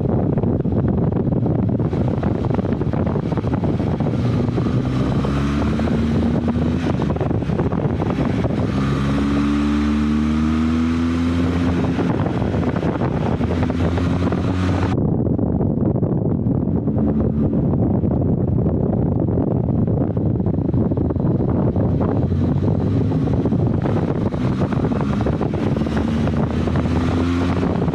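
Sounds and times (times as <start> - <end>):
motorcycle engine running: 0.0 - 27.9
wind buffeting microphone: 0.0 - 27.9.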